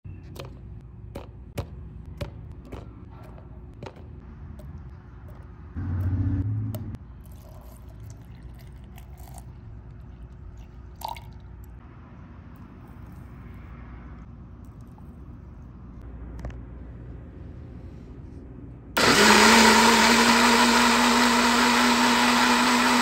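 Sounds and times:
loud low hum: 4.2s - 7.1s
milk pouring: 7.2s - 9.5s.

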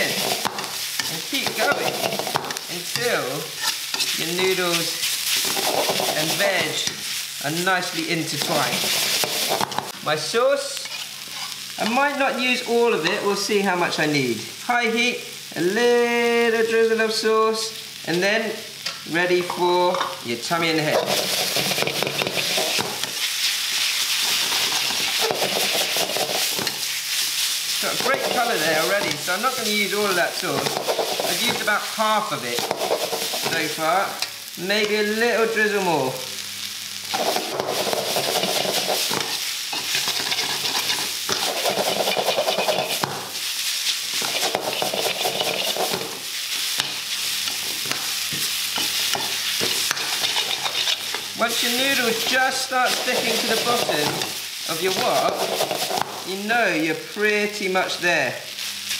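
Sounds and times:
utensil scraping wok: 0.0s - 7.4s, 8.3s - 9.9s, 10.7s - 12.0s, 20.5s - 34.3s, 37.1s - 56.3s
noodles sizzling in a wok: 0.0s - 58.9s.

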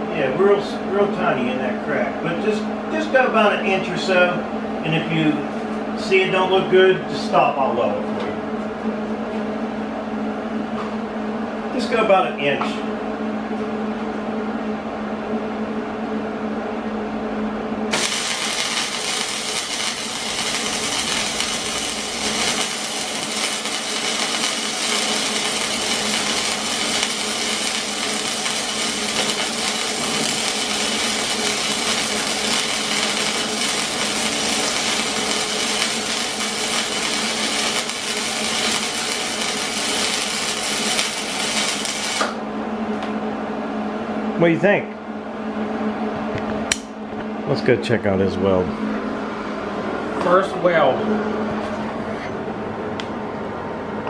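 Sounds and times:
steady hum: 0.0s - 54.0s
welder arc crackling: 17.9s - 42.4s.

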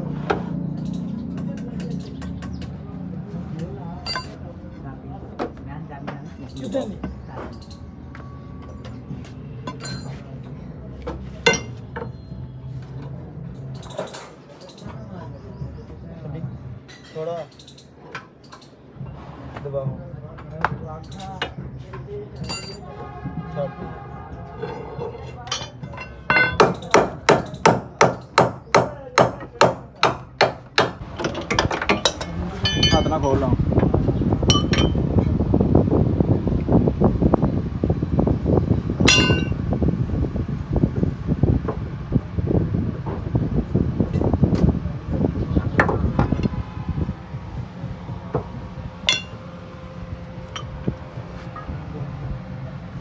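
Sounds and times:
metal tools knocking and clinking: 0.7s - 2.8s, 4.0s - 4.4s, 6.4s - 10.2s, 11.4s - 12.1s, 13.7s - 15.1s, 16.9s - 18.9s, 21.0s - 21.6s, 22.3s - 23.0s, 24.6s - 28.4s, 30.8s - 33.3s, 34.5s - 35.0s, 39.1s - 39.6s, 49.1s - 49.4s, 50.5s - 50.8s
steel part clinking on floor: 22.4s - 22.8s, 25.5s - 26.9s, 31.9s - 33.2s, 49.1s - 49.4s.

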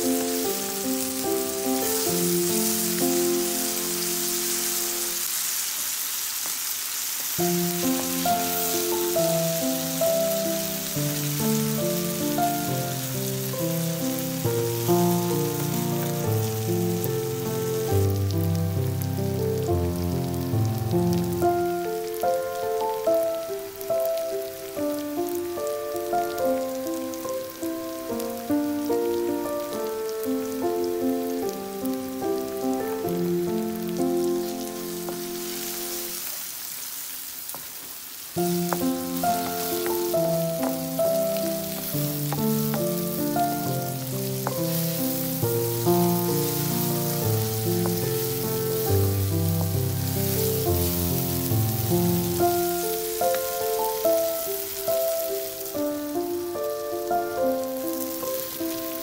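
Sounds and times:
instrumental background music: 0.0s - 5.1s, 7.4s - 36.1s, 38.4s - 59.0s
onions sizzling in a pan: 0.0s - 59.0s
wooden spatula stirring: 38.4s - 54.0s.

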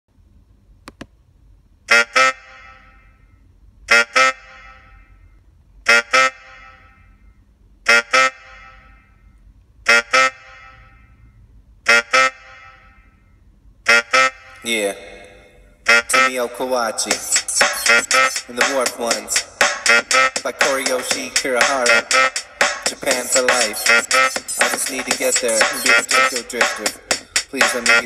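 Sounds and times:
horn honking short blasts: 1.9s - 3.0s, 3.9s - 5.1s, 5.9s - 7.1s, 7.9s - 9.2s, 9.8s - 11.2s, 11.8s - 13.2s, 13.8s - 15.2s, 15.8s - 16.5s, 17.2s - 26.6s, 27.2s - 28.0s.

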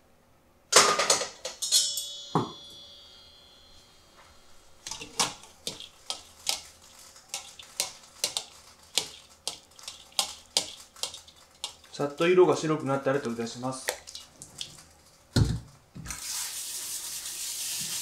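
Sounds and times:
metal kitchenware clattering: 0.8s - 3.4s, 4.9s - 12.0s
metal bowl ringing: 1.6s - 4.8s.

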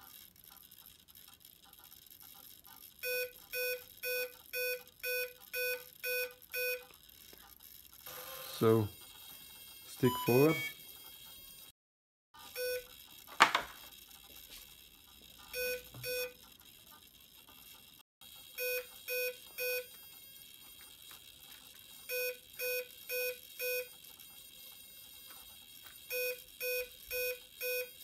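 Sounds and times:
short electronic beeps: 10.0s - 10.8s, 15.6s - 16.4s.

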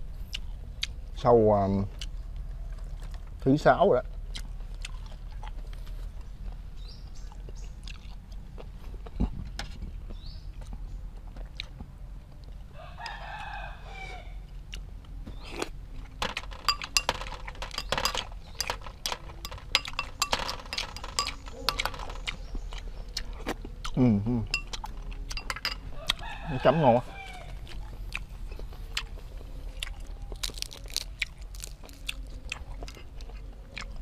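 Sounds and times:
rooster crowing: 12.7s - 14.4s, 25.9s - 27.7s
metal spoon clinking on glass bowl: 16.5s - 22.2s, 24.5s - 25.8s.

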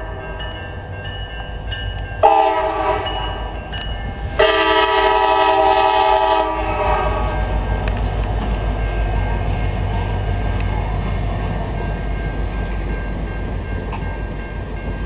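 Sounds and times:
locomotive engine rumbling: 0.0s - 15.0s
locomotive air horn blasts: 2.2s - 3.5s, 4.4s - 7.6s.

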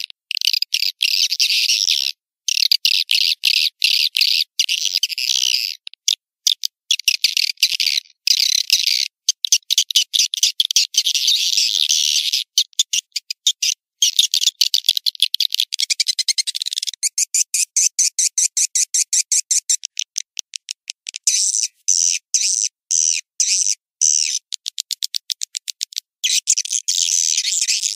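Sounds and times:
high-pitched twittering chirps: 21.2s - 24.5s, 26.2s - 27.9s.

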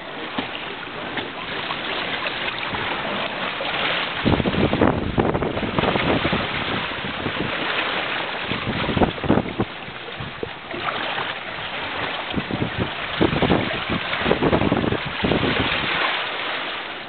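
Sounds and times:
water splashing against boat: 0.0s - 17.0s
wind buffeting microphone: 2.5s - 16.1s.

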